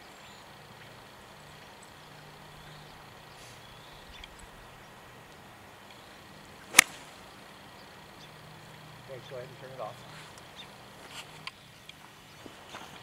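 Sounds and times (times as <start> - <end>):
golf club striking ball: 6.6 - 7.2.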